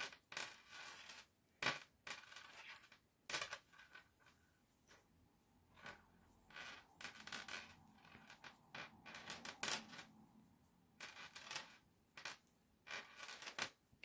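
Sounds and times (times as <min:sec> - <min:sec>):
yarn rustling through crochet stitches: 0:04.0 - 0:14.0.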